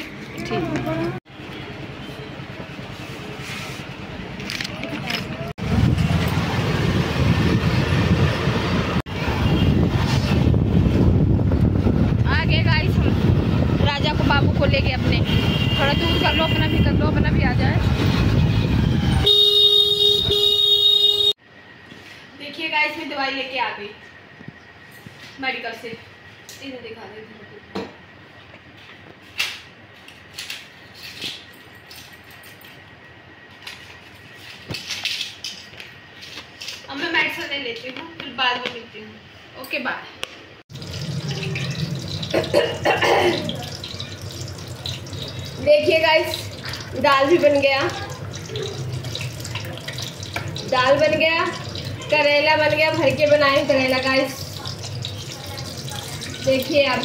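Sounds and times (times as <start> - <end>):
motorbike road noise: 0.0 - 21.4, 40.7 - 57.0
wind rumbling on microphone: 5.6 - 19.2.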